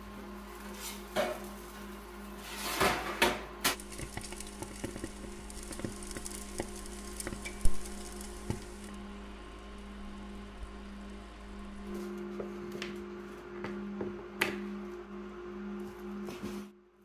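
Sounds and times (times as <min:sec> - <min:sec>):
fat crackling and spitting: 0:03.7 - 0:09.0
steady low hum: 0:03.7 - 0:16.2.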